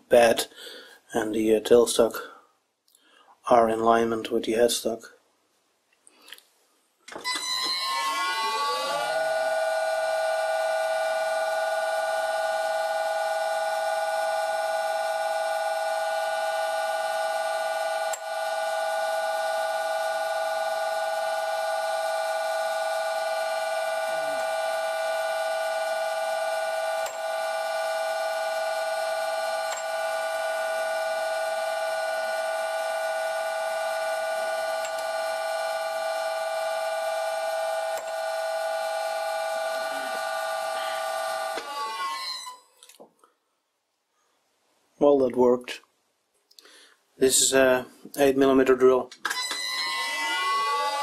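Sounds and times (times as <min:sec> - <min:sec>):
metal lathe whining: 0:07.2 - 0:42.6, 0:49.3 - 0:51.0.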